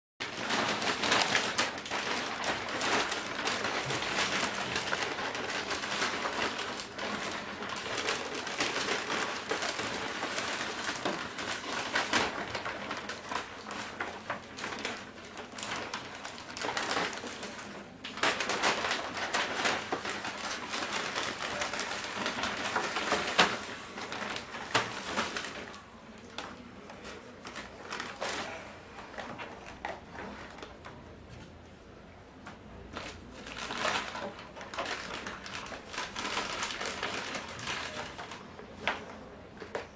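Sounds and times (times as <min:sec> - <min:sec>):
paper bags rustling: 0:00.2 - 0:39.9.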